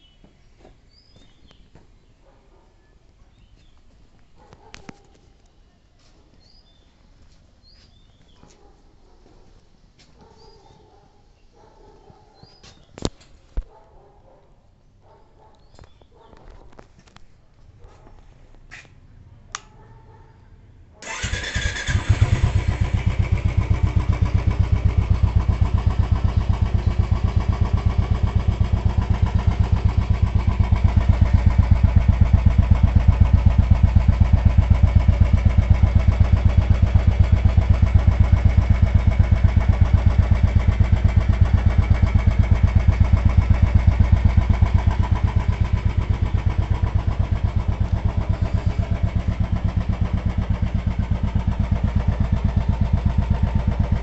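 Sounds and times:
motorcycle engine starting and idling: 21.0 - 54.0.

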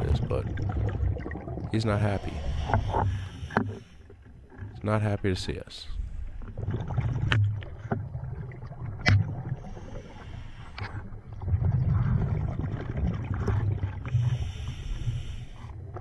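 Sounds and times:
underwater breathing bubbles: 0.0 - 4.3, 9.2 - 16.0.

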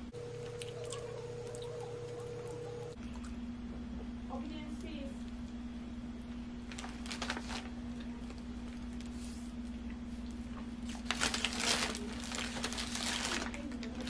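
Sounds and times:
steady low hum: 0.0 - 14.0
paper wrapper crinkling: 6.6 - 9.2, 10.8 - 14.0.

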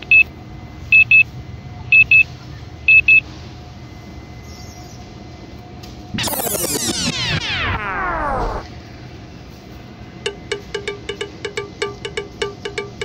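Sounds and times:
electronic double beeps: 6.2 - 8.7
music with synthesizer sweeps: 6.2 - 8.7.

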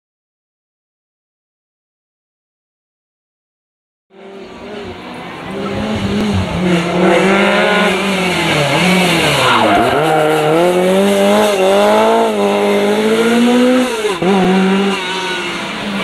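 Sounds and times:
car engine revving hard: 4.2 - 16.0.

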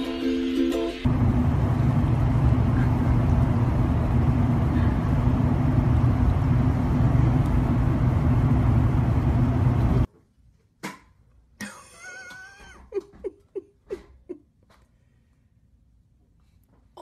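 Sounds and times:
low hum: 1.0 - 10.1
car engine rumbling: 1.1 - 10.1.

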